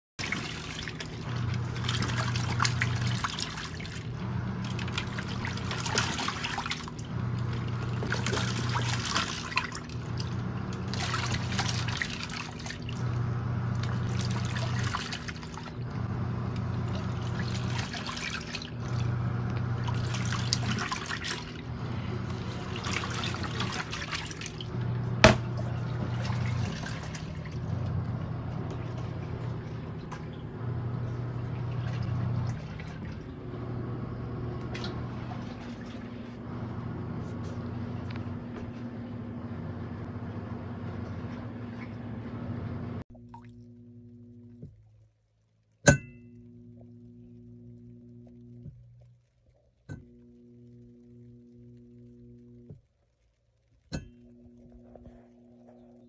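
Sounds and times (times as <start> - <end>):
water sloshing: 0.2 - 33.6, 34.2 - 36.5
washing machine motor humming: 0.2 - 45.1, 45.7 - 56.0.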